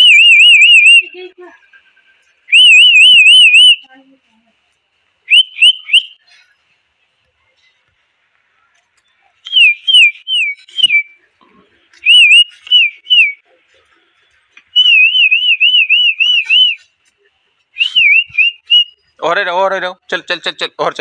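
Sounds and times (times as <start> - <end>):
person whistling a wavering call: 0.0 - 1.3, 2.5 - 3.9, 5.3 - 6.3, 9.4 - 11.2, 12.0 - 13.5, 14.7 - 16.9, 17.8 - 19.2.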